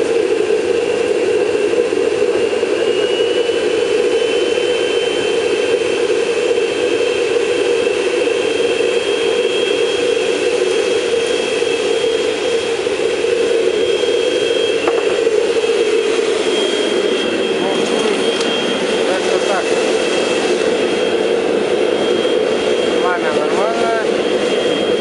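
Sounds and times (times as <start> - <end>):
thin high whine: 0.0 - 25.0
forge gas burning: 0.3 - 25.0
vacuum cleaner motor running: 9.5 - 25.0.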